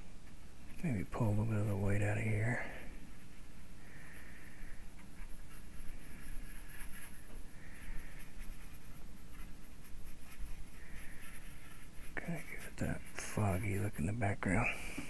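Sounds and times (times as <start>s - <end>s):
paintbrush rubbing on board: 4.1s - 15.0s.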